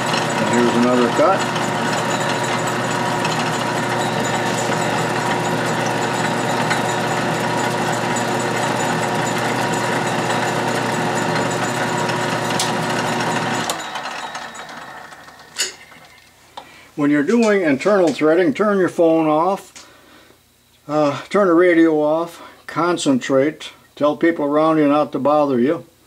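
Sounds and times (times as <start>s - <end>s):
lathe motor humming: 0.0s - 16.2s
lathe winding down: 0.0s - 16.3s.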